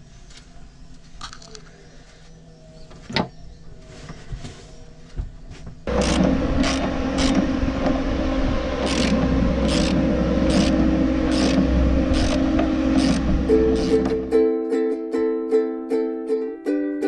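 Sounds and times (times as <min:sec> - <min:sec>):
steady low hum: 0:04.8 - 0:14.4.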